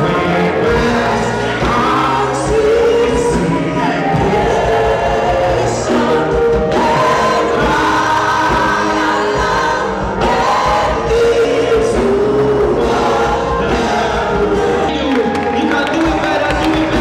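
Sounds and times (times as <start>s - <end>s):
gospel choir singing: 0.0s - 17.0s.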